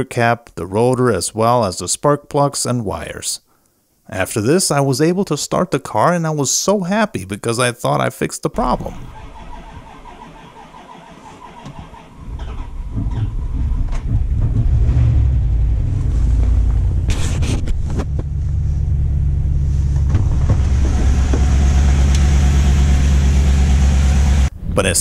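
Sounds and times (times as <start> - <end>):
truck engine starting and idling: 8.6 - 25.0.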